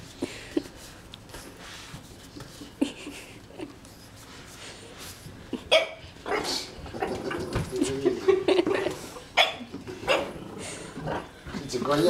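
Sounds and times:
puppy barking: 9.4 - 10.4.

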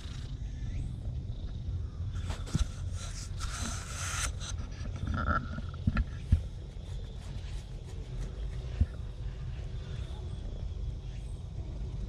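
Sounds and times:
low steady rumble: 0.0 - 12.0
fur rubbing against camera: 6.3 - 9.0.

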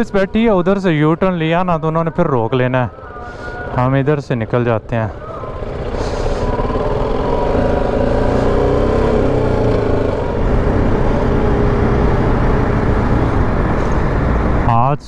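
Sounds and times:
city traffic: 0.0 - 15.0
motorcycle engine running: 2.9 - 14.7.

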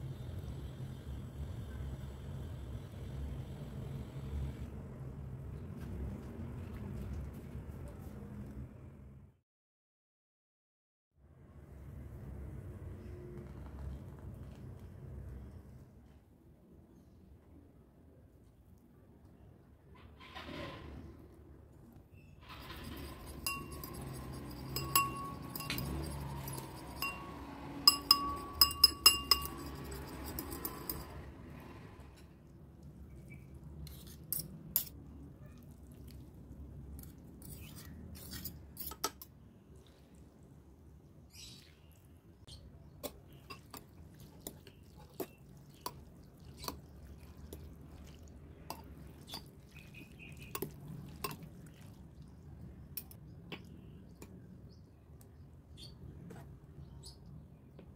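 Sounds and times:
spoon clinking in ceramic bowl: 22.5 - 31.2
utensils tapping bowls: 22.5 - 31.2, 50.4 - 51.4.

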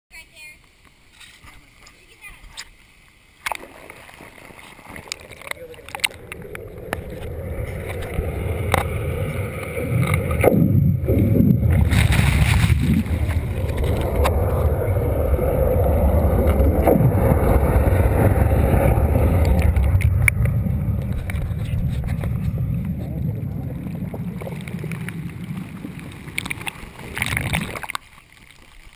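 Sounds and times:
muffled underwater churning water: 1.9 - 28.9.

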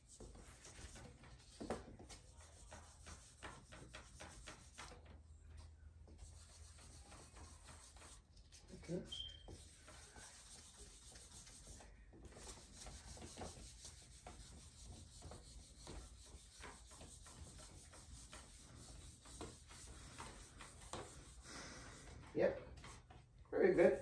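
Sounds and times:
eraser rubbing on whiteboard: 0.0 - 5.3, 6.1 - 22.2.

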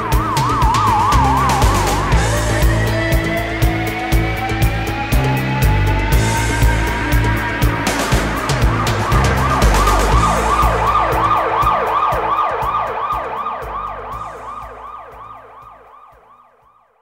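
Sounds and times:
band drums and bass: 0.0 - 16.2
warbling siren effect: 0.0 - 16.9.

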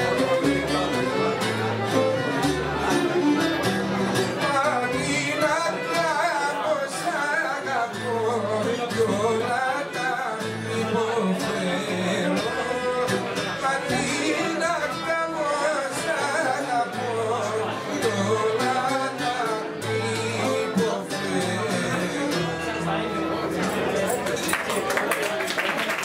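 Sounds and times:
violin melody: 0.0 - 24.1
double bass: 0.0 - 24.2
plucked lute: 0.0 - 24.9.

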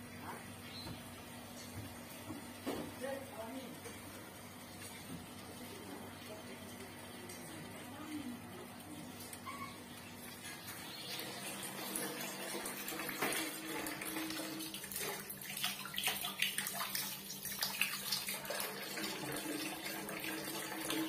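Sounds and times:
water running from tap: 9.0 - 21.0.

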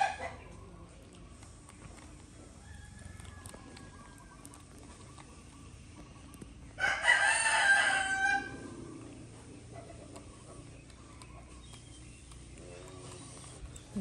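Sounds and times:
rooster crowing: 6.8 - 8.6.

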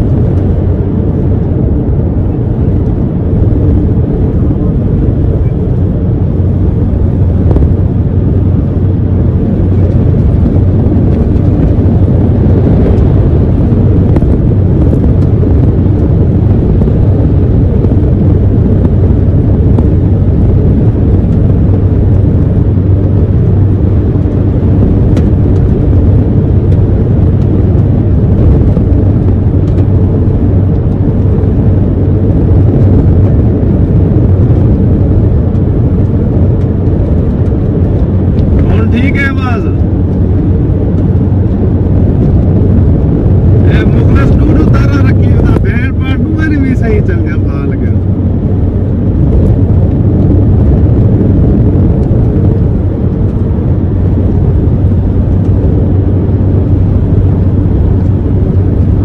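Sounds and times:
truck engine and road noise: 0.0 - 59.0.

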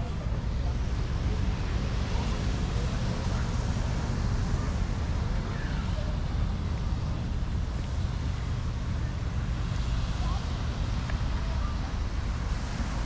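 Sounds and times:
gentle surf hiss: 0.0 - 13.0.

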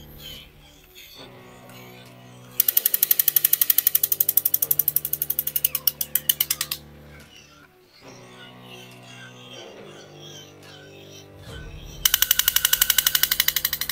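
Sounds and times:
toy rapid clicking rattle: 2.6 - 6.8, 12.1 - 13.9.

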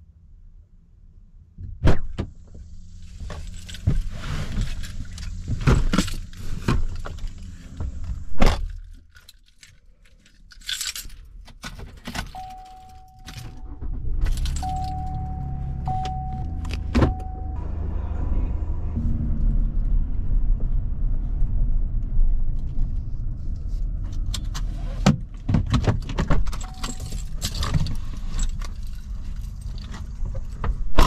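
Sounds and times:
truck engine rumbling: 2.0 - 31.0
keys jingling: 8.7 - 17.4, 26.4 - 30.0
dashboard warning chime: 12.3 - 17.6, 26.6 - 27.4
knocks and clicks in truck cab: 25.1 - 27.2.

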